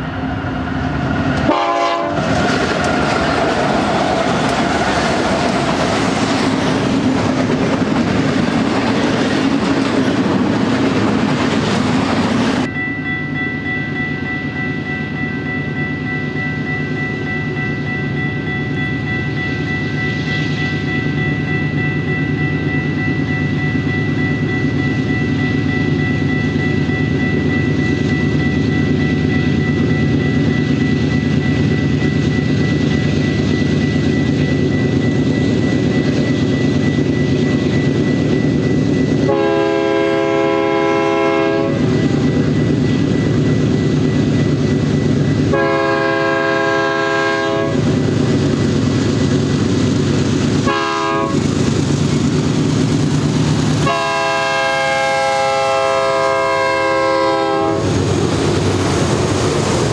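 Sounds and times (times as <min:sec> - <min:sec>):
diesel locomotive engines droning: 0:00.0 - 0:59.9
train air horn blasts: 0:01.4 - 0:02.3, 0:39.3 - 0:41.9, 0:45.5 - 0:47.8, 0:50.6 - 0:51.4, 0:53.8 - 0:57.9.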